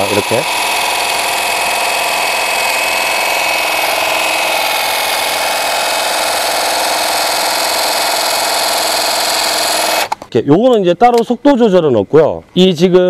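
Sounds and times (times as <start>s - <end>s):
hedge trimmer cutting foliage: 0.0s - 10.2s.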